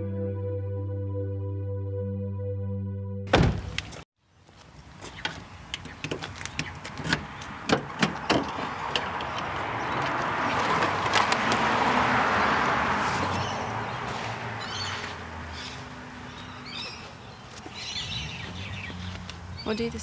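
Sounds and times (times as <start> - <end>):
sharp clicks and knocks: 5.2 - 9.5
vehicle passing: 7.2 - 20.0.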